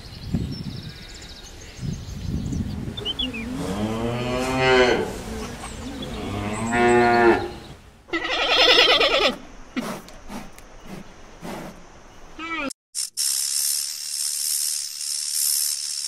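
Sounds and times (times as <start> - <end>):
animal lowing: 2.9 - 11.8
quavering bleat: 8.1 - 9.4, 12.4 - 12.7.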